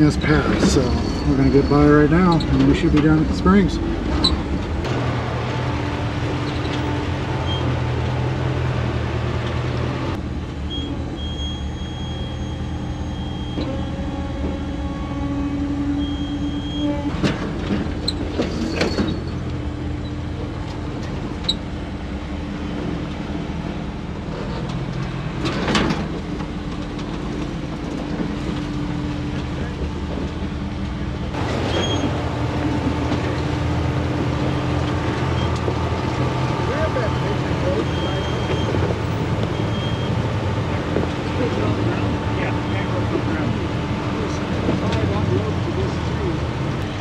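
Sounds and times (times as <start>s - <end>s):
creaks and scrapes: 0.0s - 5.0s, 13.2s - 21.6s, 24.2s - 43.5s.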